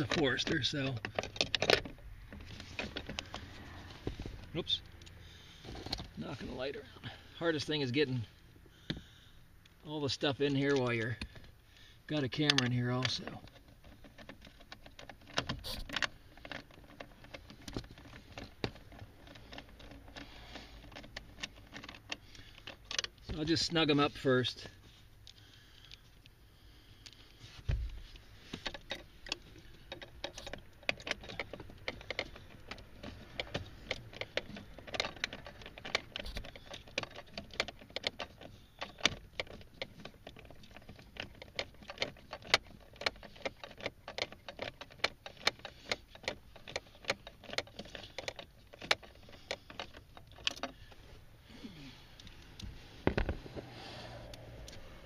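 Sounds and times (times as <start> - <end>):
metallic clicks of nuts tightening: 0.0 - 27.4, 28.0 - 55.0.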